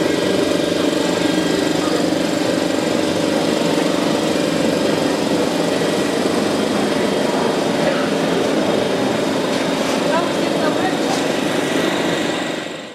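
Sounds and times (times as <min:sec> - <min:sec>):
steady mechanical drone: 0:00.0 - 0:12.9.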